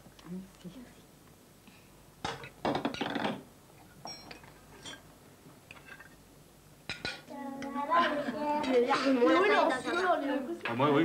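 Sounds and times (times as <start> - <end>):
dishes clattering: 2.2 - 5.1, 5.7 - 6.2, 6.9 - 7.3, 8.1 - 9.5
cutlery scraping and clinking on plates: 4.0 - 5.0, 5.7 - 6.2.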